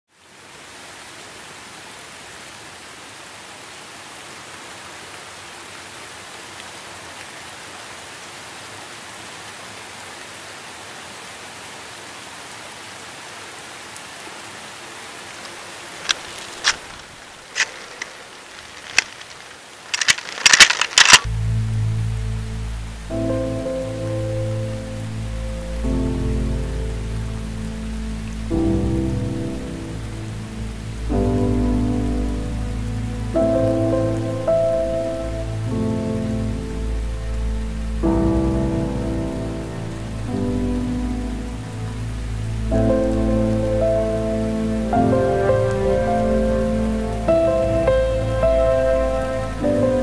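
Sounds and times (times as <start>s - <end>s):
outdoor hiss: 0.1s - 50.0s
shells clicking into shotgun: 16.0s - 21.3s
shotgun lever clacks: 19.9s - 21.3s
music: 21.3s - 50.0s.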